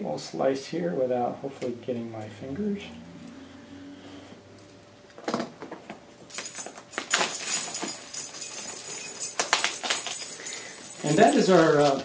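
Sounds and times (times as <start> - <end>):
dog collar tags jingling: 6.3 - 12.0.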